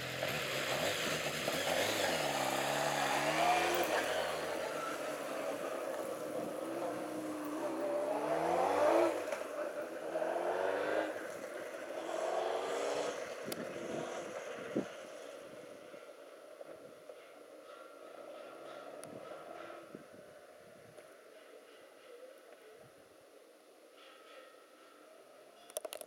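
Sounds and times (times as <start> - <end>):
motorcycle engine accelerating: 0.0 - 17.3.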